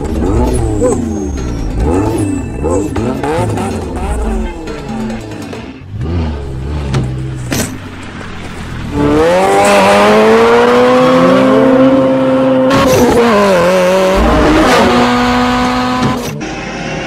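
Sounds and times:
car engine revving hard: 8.9s - 17.0s.

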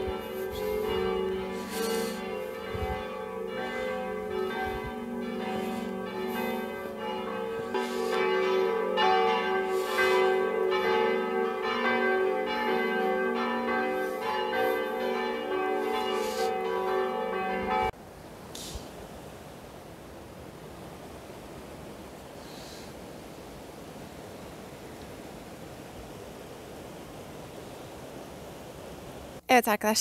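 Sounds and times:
church bells ringing: 0.0s - 18.0s.

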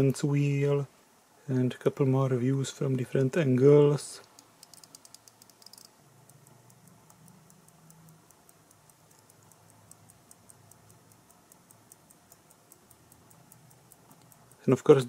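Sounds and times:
electric clock ticking faintly: 4.2s - 15.0s.

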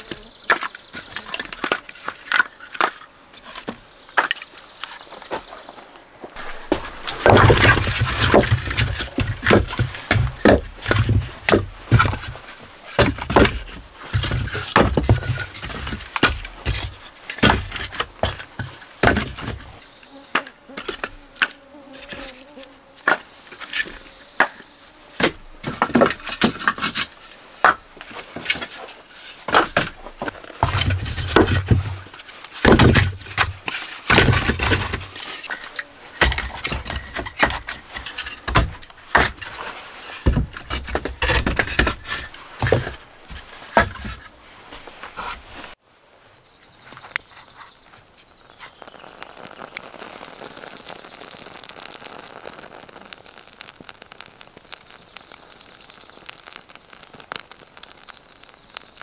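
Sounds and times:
firewood knocking onto woodpile: 6.4s - 12.3s
insect buzzing: 19.8s - 25.2s, 48.2s - 59.0s.

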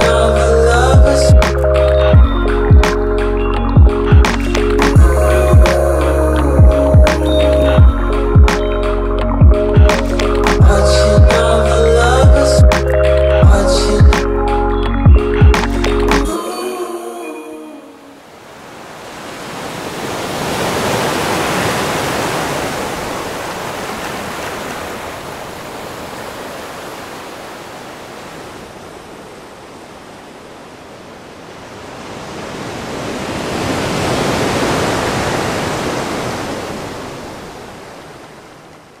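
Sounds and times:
waves breaking: 18.0s - 39.0s.

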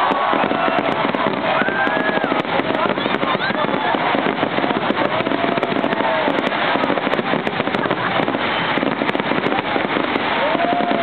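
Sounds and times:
fireworks crackling: 0.0s - 11.0s.

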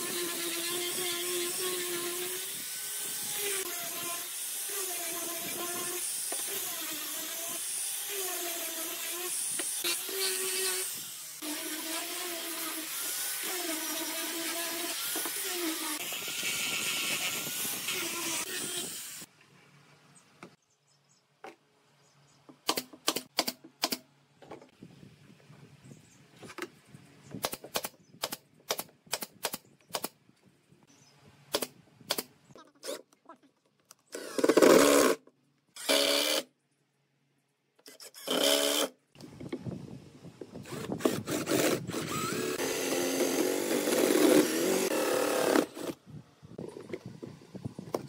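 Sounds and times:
drill boring into wood: 34.1s - 35.2s, 35.8s - 36.5s, 37.9s - 39.0s, 40.6s - 46.0s
cordless drill driving screw: 40.6s - 46.0s.

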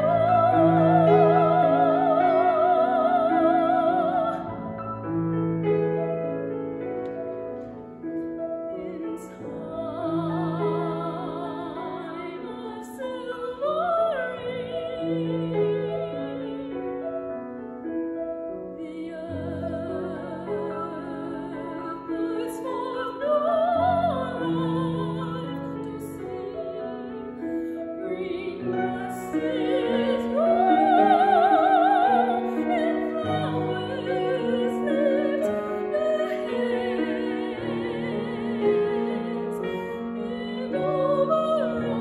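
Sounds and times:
grand piano accompaniment: 0.0s - 42.0s
woman singing classical song: 0.0s - 42.0s.

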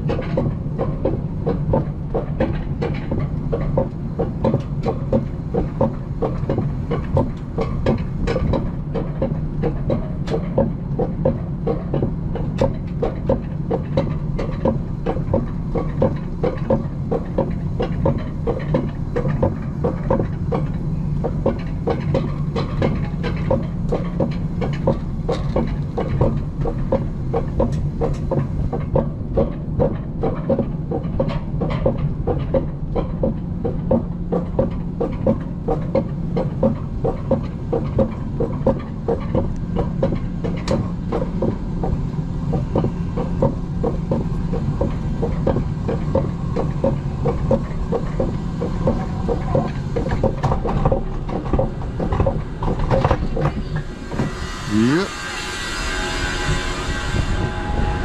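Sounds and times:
coaster lift hum: 0.0s - 58.0s.

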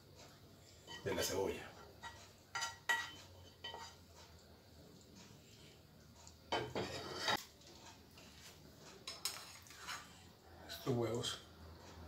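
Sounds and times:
spatula scraping metal frying pan: 1.8s - 4.4s, 6.5s - 7.4s, 8.2s - 10.3s
pan clattering on stove grate: 2.0s - 4.1s, 6.5s - 7.4s, 9.0s - 10.1s.

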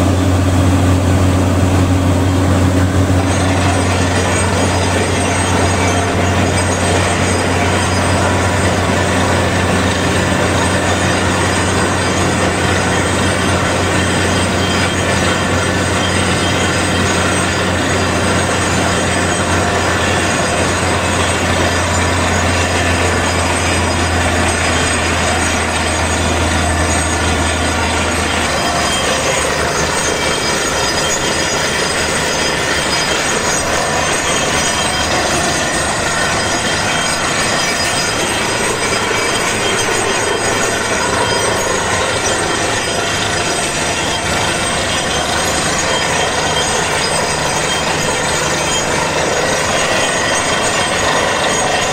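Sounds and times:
drilling rig machine din: 0.0s - 51.9s
low drone: 0.0s - 51.9s.

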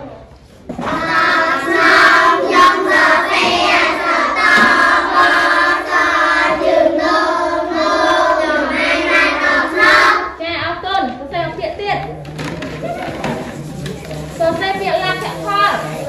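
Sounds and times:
children chanting in unison: 0.8s - 10.4s.

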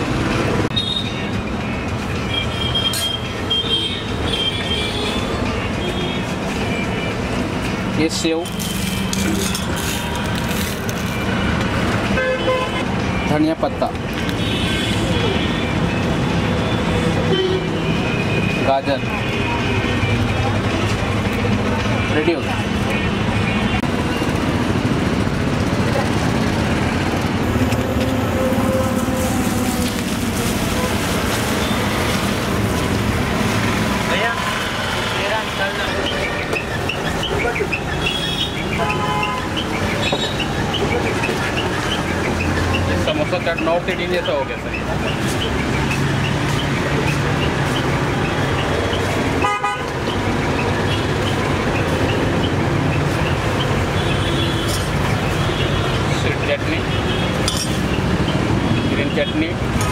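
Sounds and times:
road traffic: 0.0s - 59.9s
vehicle horn toot: 49.4s - 49.9s.

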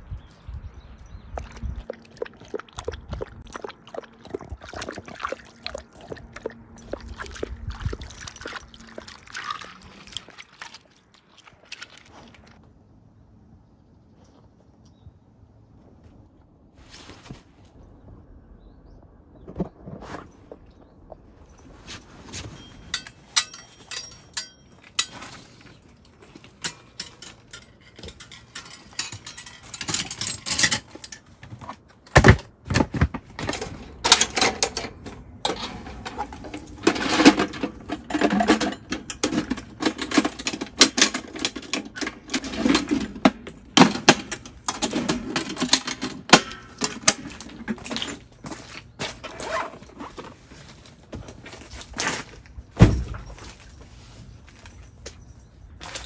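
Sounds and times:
rustling: 16.8s - 17.8s, 21.3s - 30.0s
clicks knocks and clatter: 22.9s - 48.3s.

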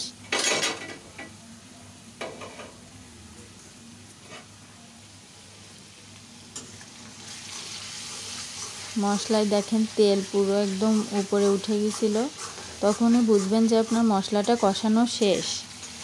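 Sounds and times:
paste sizzling in oil: 5.5s - 16.0s.

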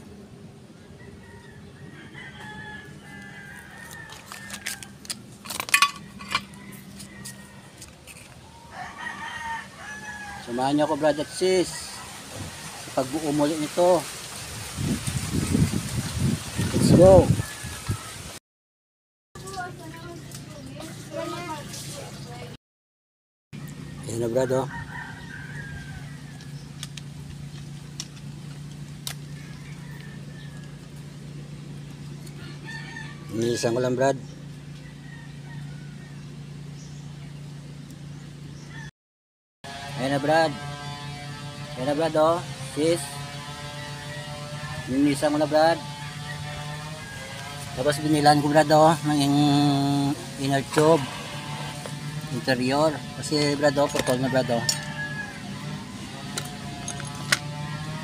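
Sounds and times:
rooster crowing: 0.8s - 5.2s, 5.9s - 13.0s, 16.5s - 18.3s, 23.8s - 26.7s, 29.2s - 31.1s, 32.2s - 33.8s, 34.7s - 36.5s, 38.7s - 38.9s, 45.3s - 48.8s, 52.8s - 58.0s.

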